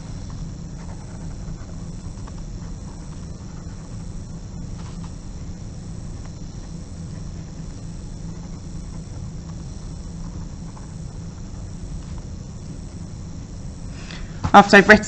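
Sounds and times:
low hum and hiss: 0.0 - 15.0
pen scratching on paper: 0.4 - 4.1.

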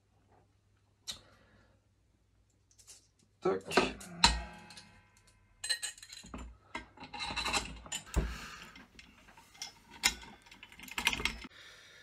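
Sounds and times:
metal parts scraping and rubbing: 3.8 - 11.5.

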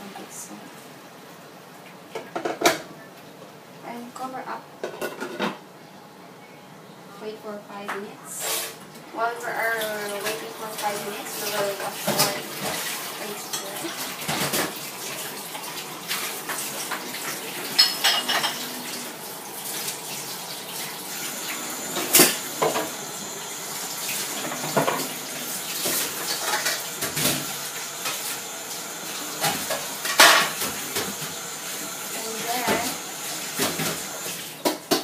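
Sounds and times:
tap water running into sink: 9.7 - 35.0
dishes and cutlery clinking: 17.7 - 18.8.

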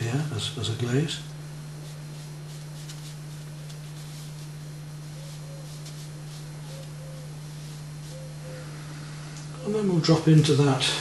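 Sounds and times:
steady low hum: 0.0 - 11.0
brush strokes on paper: 1.8 - 8.4.

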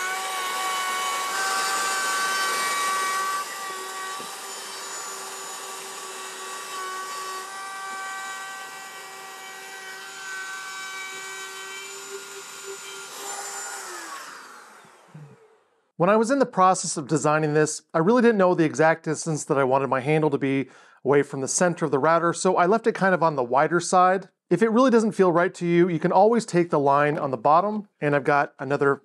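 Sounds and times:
router motor whine cutting wood: 0.0 - 15.8.

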